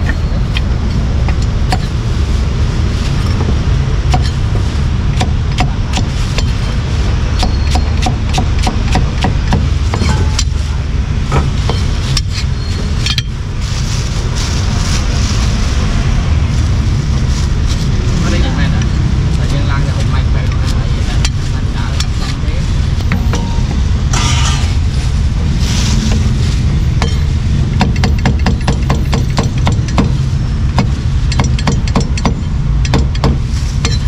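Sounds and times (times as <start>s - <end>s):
street traffic rumble: 0.0s - 34.0s
cleaver chopping on wooden block: 7.4s - 10.5s.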